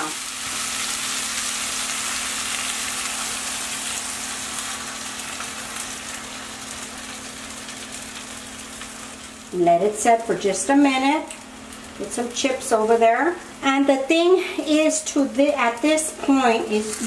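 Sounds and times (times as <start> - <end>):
eggs sizzling in hot oil: 0.0 - 17.0.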